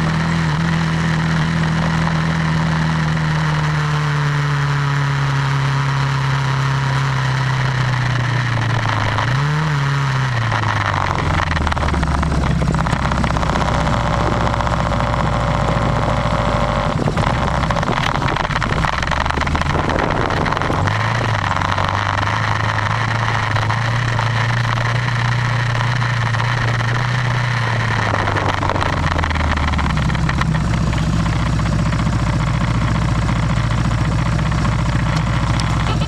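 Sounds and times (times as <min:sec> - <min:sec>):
noisy rumble over dirt track: 0:00.0 - 0:36.0
vehicle engine running: 0:00.0 - 0:36.0.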